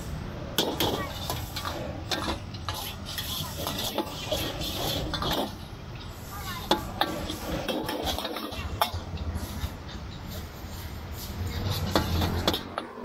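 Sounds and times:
voices chattering: 0:00.4 - 0:13.0
metal utensils clinking on dishes: 0:06.7 - 0:10.4, 0:11.5 - 0:13.0.

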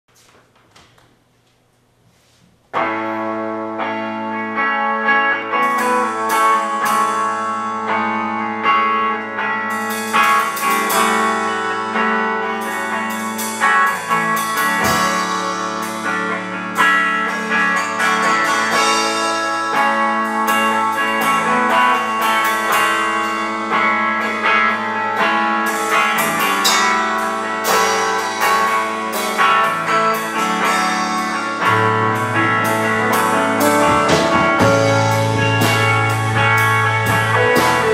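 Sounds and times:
electric bass: 0:02.7 - 0:37.9
electric guitar: 0:02.7 - 0:37.9
cymbal and drum strikes: 0:12.7 - 0:21.5.

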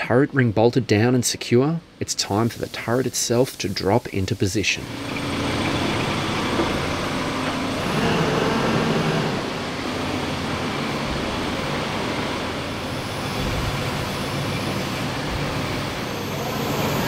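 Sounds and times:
heavy machinery engine running: 0:04.8 - 0:17.0.

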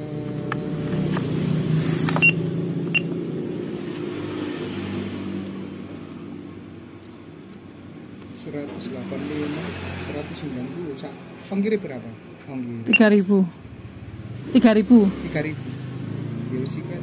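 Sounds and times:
short electronic beeps: 0:02.2 - 0:03.1.

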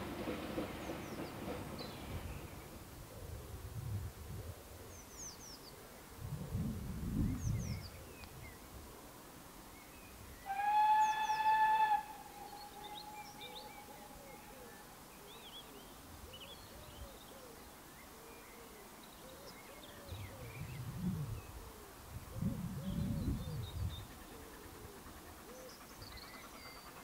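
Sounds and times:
birds singing: 0:00.0 - 0:02.8, 0:04.8 - 0:06.1, 0:07.2 - 0:08.6, 0:09.7 - 0:21.8, 0:22.8 - 0:27.0
steam locomotive whistle: 0:10.5 - 0:13.7.

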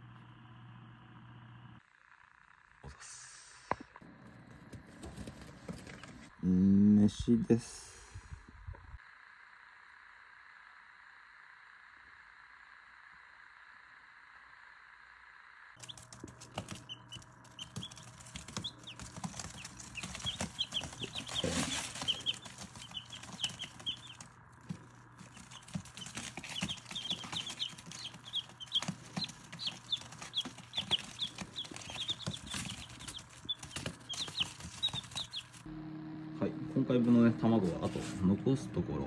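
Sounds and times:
faint low hum: 0:00.0 - 0:39.0
chicks peeping: 0:04.4 - 0:06.3, 0:15.8 - 0:35.7.

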